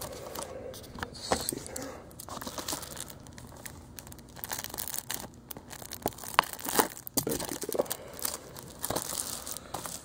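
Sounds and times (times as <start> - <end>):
plastic wrap crinkling: 1.6 - 10.0
plastic wrap snapping: 2.2 - 10.0.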